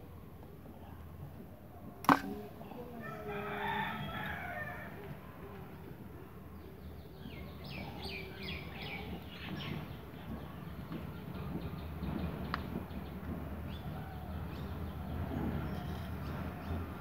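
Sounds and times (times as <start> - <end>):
sharp click: 2.0 - 2.4
rooster crowing: 2.9 - 5.1.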